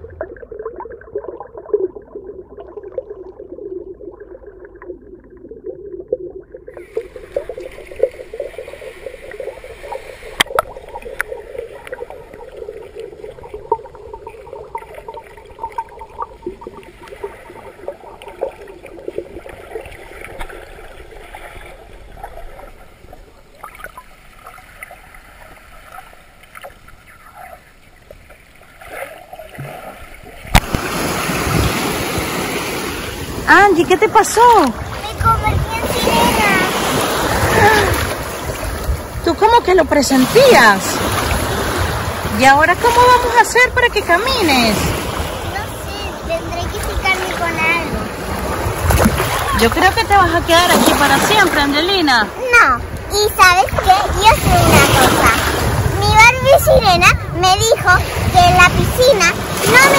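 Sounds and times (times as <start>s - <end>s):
underwater clicks and crackles: 0.0s - 30.9s, 48.8s - 52.0s
underwater gurgling and bubbles: 0.0s - 59.9s.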